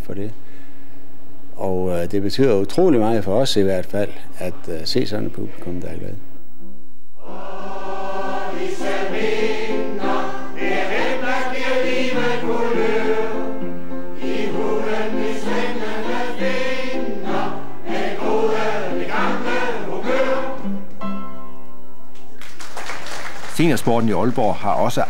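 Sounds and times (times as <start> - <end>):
choir singing: 7.2 - 20.9.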